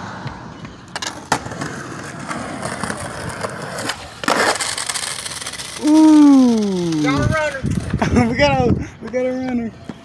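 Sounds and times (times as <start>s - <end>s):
skateboard clattering scrape: 0.0s - 5.8s
skateboard clacks: 0.0s - 6.0s
skateboard wheels rolling: 0.0s - 10.0s.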